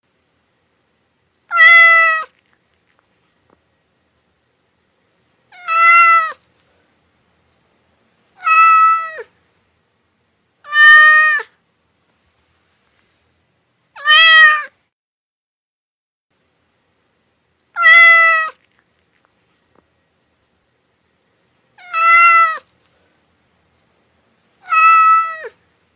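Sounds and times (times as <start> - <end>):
cat meowing: 1.5 - 2.4, 5.5 - 6.4, 8.4 - 9.3, 10.6 - 11.5, 14.0 - 14.8, 17.8 - 18.6, 21.8 - 22.7, 24.6 - 25.6.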